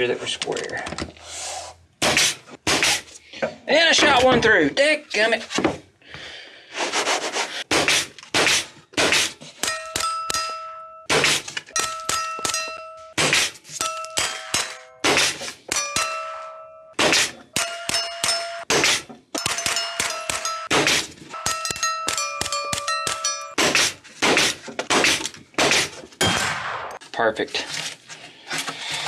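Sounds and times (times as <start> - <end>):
rapid gunfire: 7.7 - 9.3, 23.6 - 27.0
steel plates ringing notes: 9.6 - 11.1, 11.7 - 18.7, 19.3 - 23.6.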